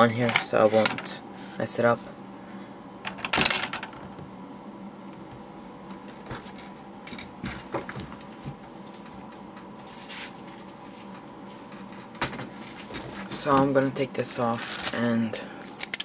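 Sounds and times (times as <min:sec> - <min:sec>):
steady hum: 0:00.0 - 0:16.0
plastic parts clattering: 0:03.1 - 0:04.0, 0:14.3 - 0:15.1, 0:15.7 - 0:16.0.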